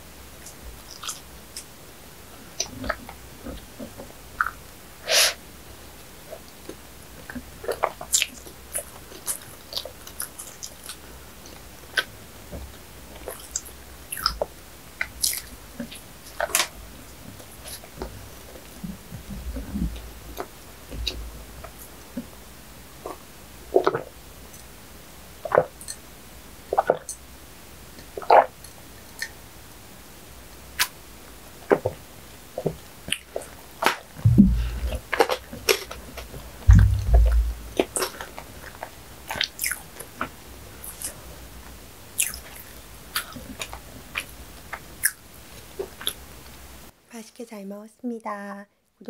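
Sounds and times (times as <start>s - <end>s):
chewing bread: 0.4s - 1.7s, 6.3s - 24.7s, 26.7s - 27.2s, 32.6s - 46.2s
low thumps: 34.2s - 35.2s, 36.7s - 38.0s.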